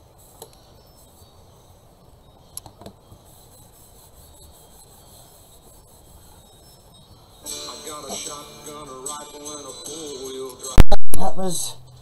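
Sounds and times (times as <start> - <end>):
paper towel rubbing paper: 3.2 - 6.8.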